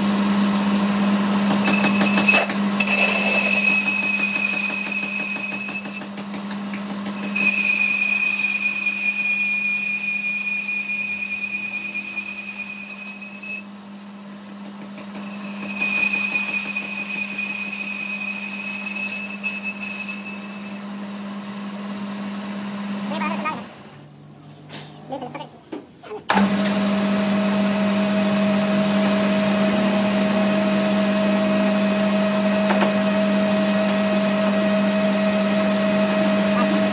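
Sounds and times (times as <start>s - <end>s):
metal lathe humming: 0.0s - 23.1s
high whistle of tool cutting: 1.6s - 6.1s, 7.2s - 13.7s, 15.1s - 22.8s.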